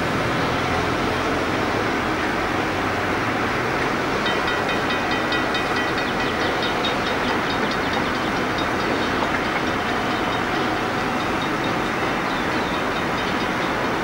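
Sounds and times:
diesel locomotive running slowly: 0.0 - 14.0.

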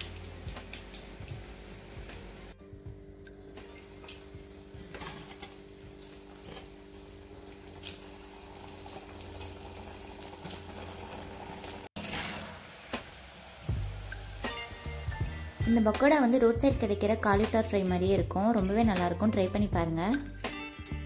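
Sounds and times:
deep-frying sizzle and pops: 0.0 - 2.6, 3.2 - 16.2.

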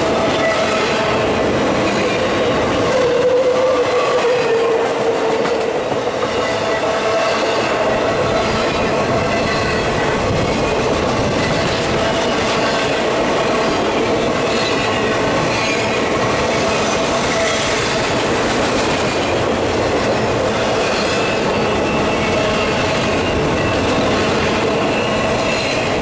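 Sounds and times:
train wheels clattering on rails: 0.0 - 26.0
wheel squeal: 20.8 - 26.0.

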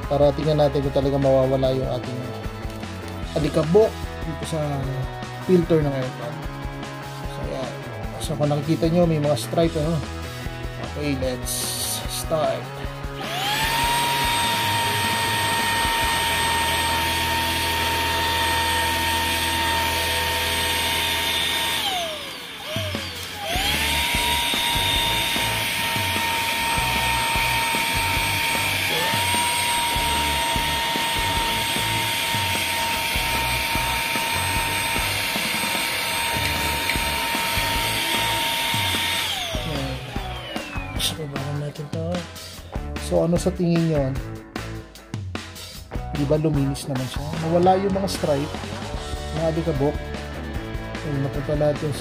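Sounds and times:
vacuum cleaner motor whining: 13.1 - 41.3.

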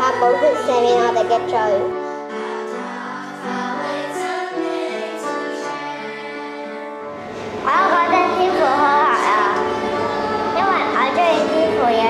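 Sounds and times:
children singing: 0.0 - 1.4, 2.3 - 6.8, 7.7 - 12.0
high wavering voice singing: 0.0 - 1.9, 7.6 - 12.0
musical accompaniment: 0.0 - 12.0.

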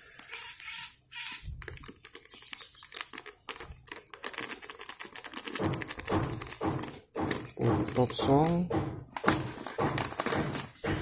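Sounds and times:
dry feed pattering into plastic cup: 0.0 - 7.0
plastic packet crinkling: 0.0 - 8.6.

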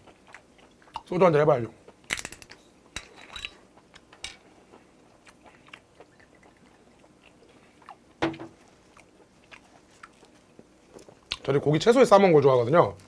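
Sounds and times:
mouth chewing: 0.0 - 1.2, 3.4 - 11.6.

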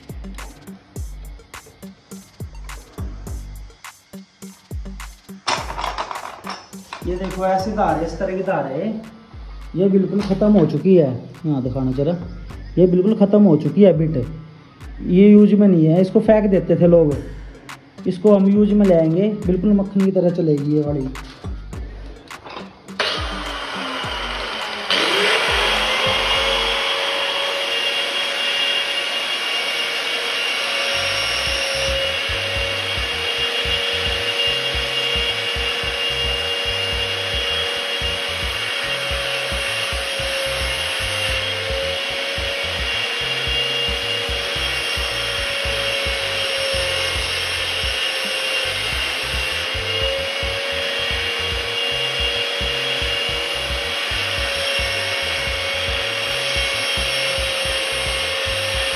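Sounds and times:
electric motor whining: 20.8 - 58.9
cutter teeth grinding on wheel: 22.5 - 58.9.

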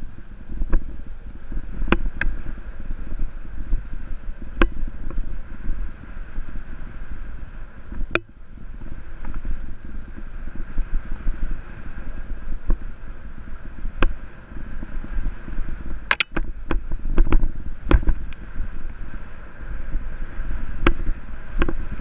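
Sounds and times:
wind rumbling on microphone: 0.0 - 22.0
bike clicking and rattling: 16.0 - 18.5, 20.8 - 22.0.

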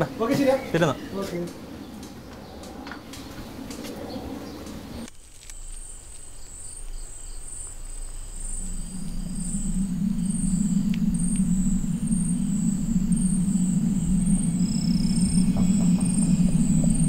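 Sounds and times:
crickets chirping: 0.0 - 17.0
low rumble: 5.8 - 17.0.

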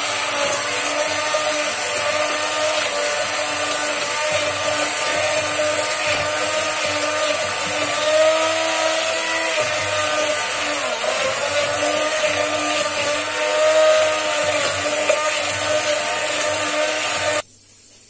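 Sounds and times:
hand blender motor whine: 0.0 - 17.4.

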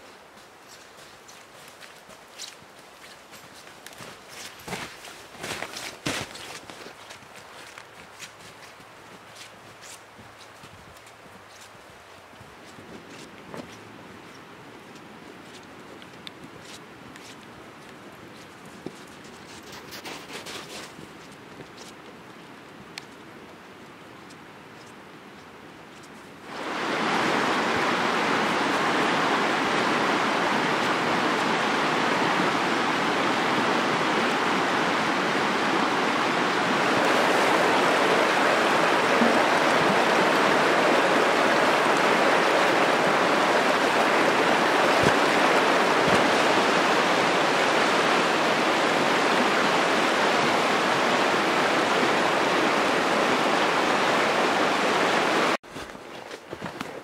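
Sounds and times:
creek water rushing over rocks: 0.0 - 16.2, 26.4 - 55.8.

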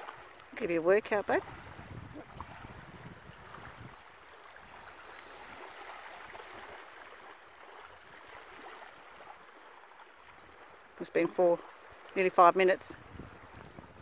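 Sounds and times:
wind rumbling on microphone: 0.0 - 7.1, 12.6 - 14.0
small waves lapping on shore: 0.0 - 14.0.

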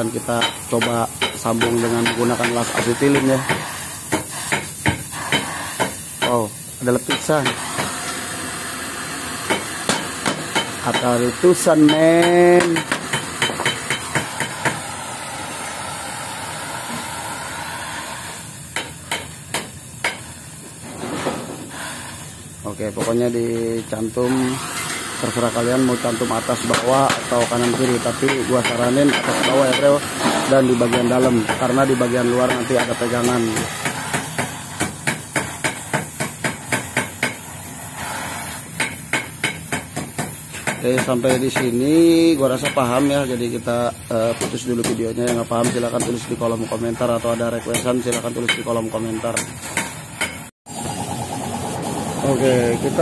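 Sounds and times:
welding torch hissing: 0.0 - 53.0
sharp metallic tapping: 11.8 - 14.8, 38.8 - 41.9.

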